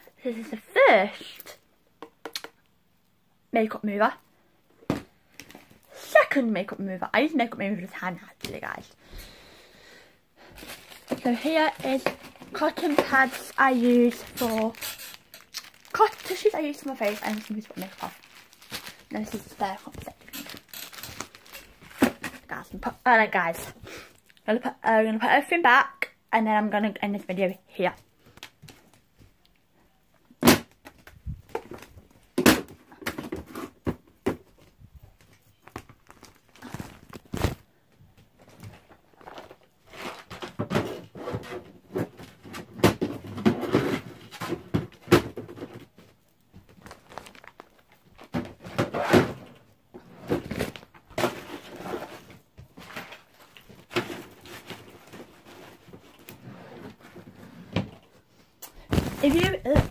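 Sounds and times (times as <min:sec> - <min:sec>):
rustling: 0:10.4 - 0:22.7, 0:34.6 - 0:37.7, 0:58.3 - 0:59.9.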